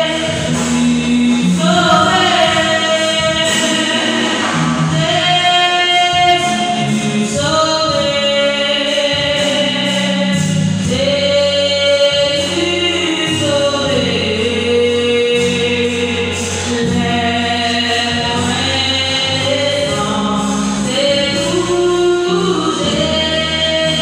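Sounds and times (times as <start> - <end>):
voices singing in harmony: 0.0 - 8.1
bass line: 0.0 - 24.0.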